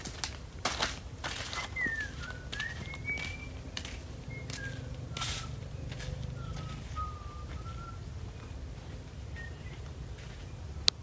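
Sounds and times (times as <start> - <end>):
footsteps on dry leaves and sand: 0.0 - 10.8
person whistling a tune: 1.6 - 5.6, 6.4 - 8.1.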